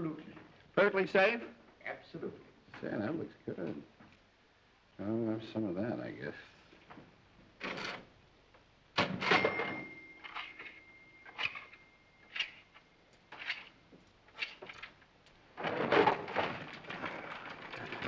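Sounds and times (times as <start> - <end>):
cash register key clunks: 9.0 - 11.7
cash register bell ringing: 9.2 - 12.8.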